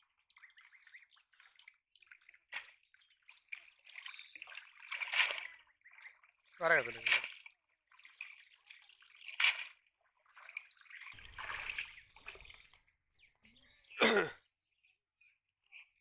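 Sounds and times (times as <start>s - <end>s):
water splashing and dripping: 0.0s - 12.9s
sharp splash: 4.0s - 5.6s, 6.8s - 7.5s, 9.2s - 9.8s, 10.4s - 12.7s.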